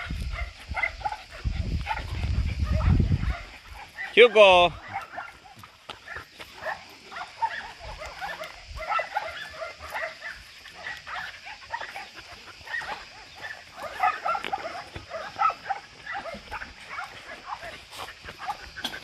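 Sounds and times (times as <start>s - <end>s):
dogs yipping and barking: 0.0s - 19.0s.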